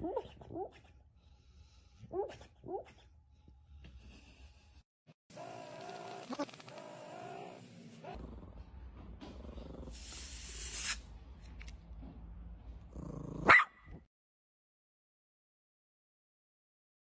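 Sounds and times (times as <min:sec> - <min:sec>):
dog growling low: 0:08.1 - 0:10.0, 0:12.9 - 0:13.5
dog barking sharply: 0:13.5 - 0:13.9.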